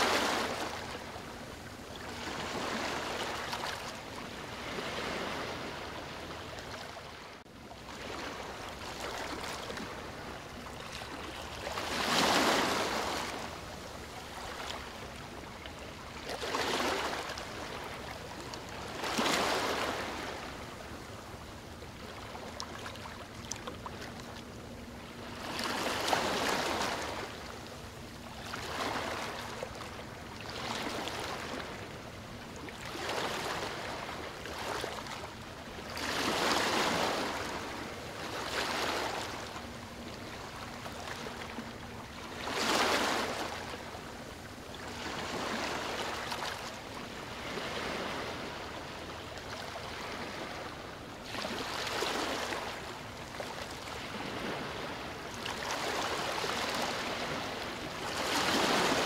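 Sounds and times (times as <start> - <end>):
rushing water: 0.0 - 0.9.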